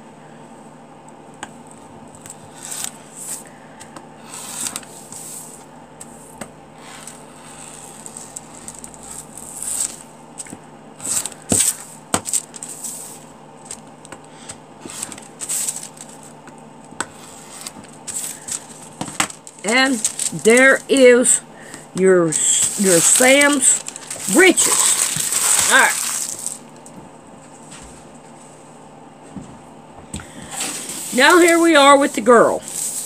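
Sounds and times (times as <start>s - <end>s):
rotary cutter cutting paper: 4.2s - 5.5s, 6.8s - 12.8s, 17.0s - 21.2s, 22.3s - 26.6s
paper crinkling: 7.0s - 13.9s, 14.8s - 16.4s, 17.2s - 27.0s, 30.2s - 33.0s.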